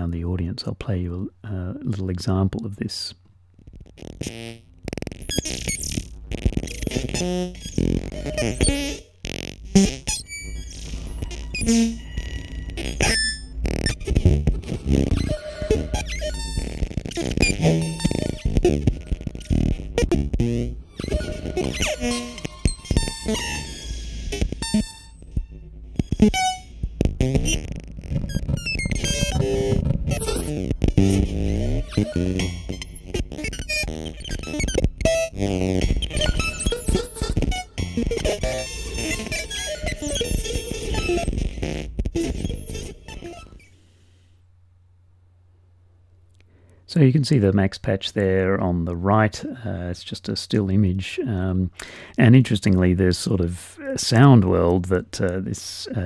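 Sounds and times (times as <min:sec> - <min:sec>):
electronic synthesizer blips and chirps: 0:03.7 - 0:43.8.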